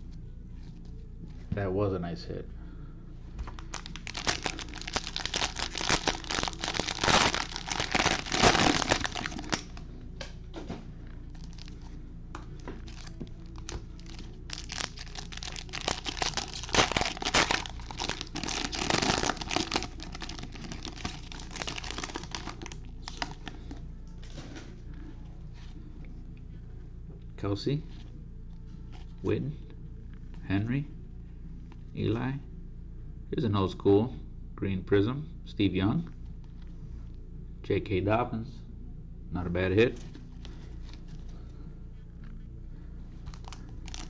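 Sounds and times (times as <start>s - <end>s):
cellophane wrapper crinkling: 3.4s - 9.8s, 11.3s - 11.9s, 12.5s - 24.5s, 43.2s - 44.0s.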